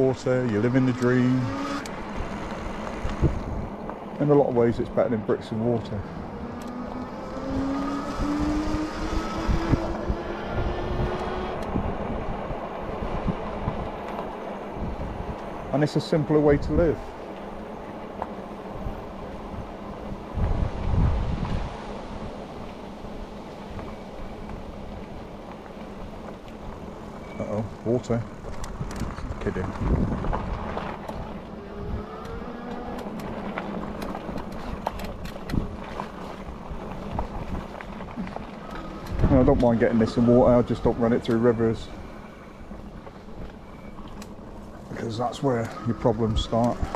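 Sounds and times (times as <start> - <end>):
low rumble of wind and tyres: 0.0 - 46.9
electric motor whining: 0.4 - 4.0, 6.0 - 12.2, 29.9 - 36.0.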